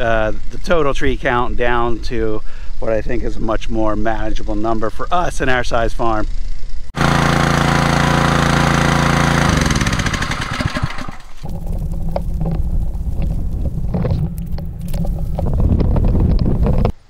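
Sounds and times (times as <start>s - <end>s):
small gasoline engine running: 7.0s - 12.6s
low outdoor rumble: 10.8s - 17.0s
footsteps through grass: 11.4s - 16.9s.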